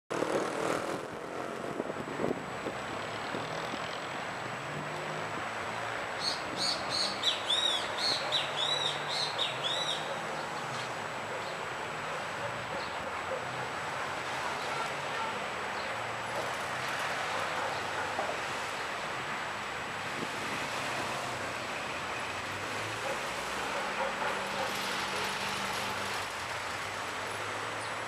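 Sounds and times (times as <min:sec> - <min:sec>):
outdoor background noise: 0:00.1 - 0:28.0
bird chirping: 0:06.2 - 0:10.5.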